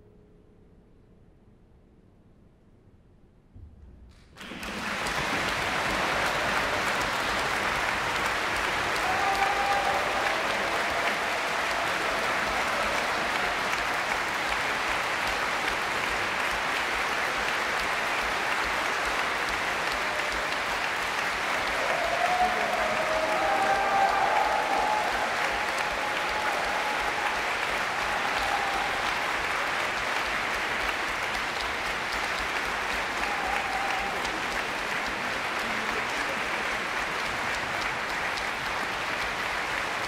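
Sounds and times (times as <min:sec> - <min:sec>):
audience applause: 0:04.4 - 0:40.0.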